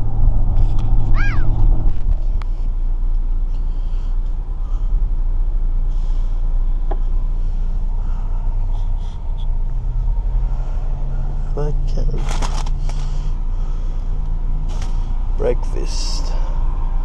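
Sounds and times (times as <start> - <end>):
car engine and road rumble: 0.0 - 17.0
paper rustling: 12.2 - 13.1.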